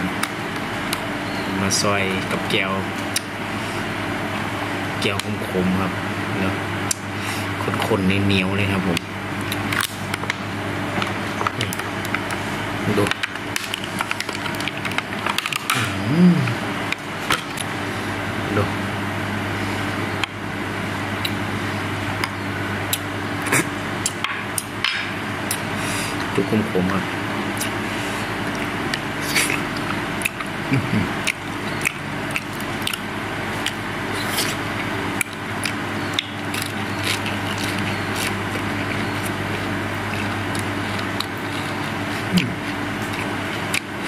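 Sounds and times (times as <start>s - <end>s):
low machine hum: 0.0s - 44.0s
person chewing with open mouth: 21.2s - 21.5s, 22.1s - 24.8s, 25.4s - 26.3s, 27.4s - 44.0s.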